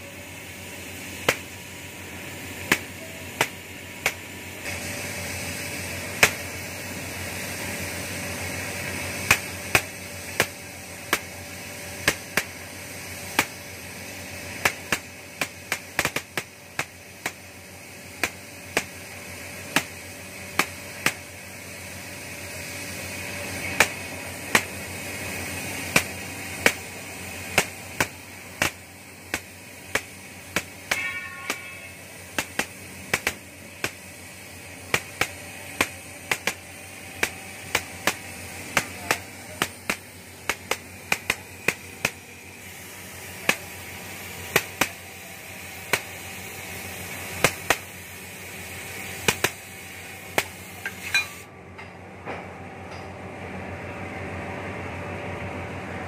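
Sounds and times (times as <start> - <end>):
cutting torch hissing: 0.0 - 51.5
sharp snapping pops: 1.2 - 1.5, 2.7 - 4.2, 6.2 - 6.5, 9.3 - 11.3, 12.0 - 12.5, 14.6 - 17.4, 18.2 - 19.0, 19.7 - 21.3, 23.8 - 24.8, 25.9 - 26.9, 27.5 - 31.6, 32.4 - 34.0, 34.9 - 38.2, 38.8 - 42.2, 43.4 - 43.7, 44.5 - 45.0, 45.9 - 46.1, 47.4 - 47.9, 49.3 - 49.6, 50.4 - 50.6.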